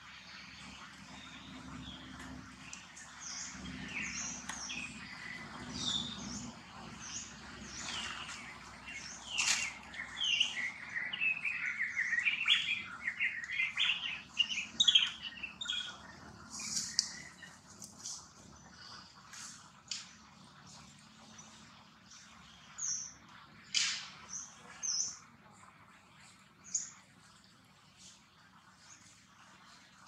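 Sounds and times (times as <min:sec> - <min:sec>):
birds chirping and singing: 0:00.3 - 0:19.1.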